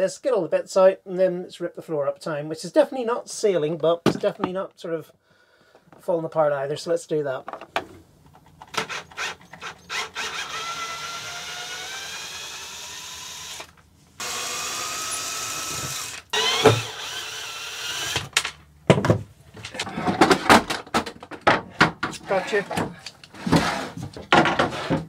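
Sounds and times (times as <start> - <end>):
cordless drill running: 8.8 - 18.4.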